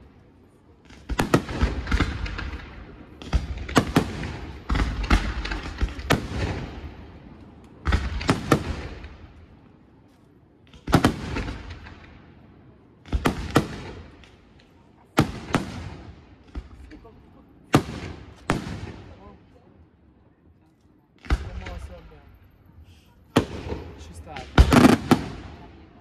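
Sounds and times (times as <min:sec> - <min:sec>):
fireworks bursting: 0:00.7 - 0:09.4, 0:10.6 - 0:12.4, 0:13.0 - 0:19.3, 0:23.3 - 0:26.0.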